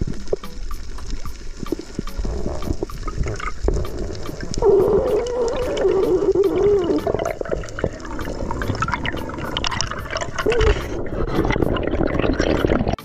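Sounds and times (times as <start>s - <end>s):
underwater clicks and crackles: 0.0s - 13.0s
wavering tone: 4.2s - 12.9s.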